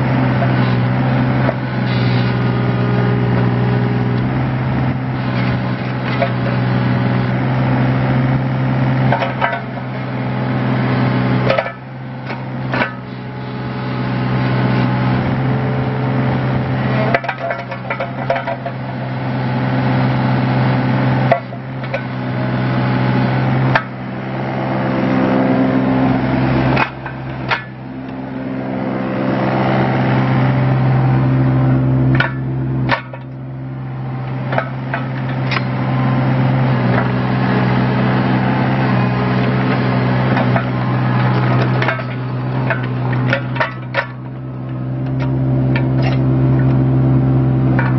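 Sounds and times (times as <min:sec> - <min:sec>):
excavator diesel engine running: 0:00.0 - 0:47.9
excavator arm clunks: 0:04.1 - 0:07.3, 0:08.0 - 0:13.3, 0:16.5 - 0:19.2, 0:21.2 - 0:22.8, 0:23.4 - 0:24.2, 0:26.6 - 0:28.6, 0:32.0 - 0:47.0, 0:47.6 - 0:47.9.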